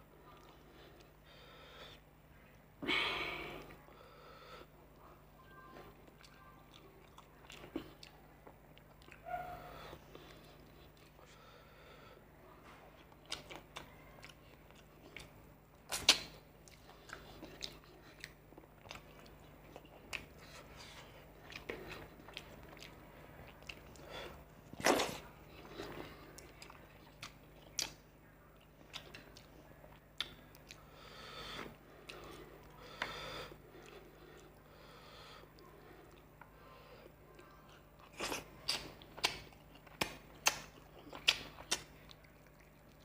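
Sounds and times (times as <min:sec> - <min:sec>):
faint low hum: 0:00.0 - 0:43.0
man chewing with wet mouth sounds: 0:00.1 - 0:02.7, 0:03.4 - 0:43.0
lip smacks: 0:13.2 - 0:28.0, 0:28.8 - 0:30.8, 0:38.0 - 0:43.0.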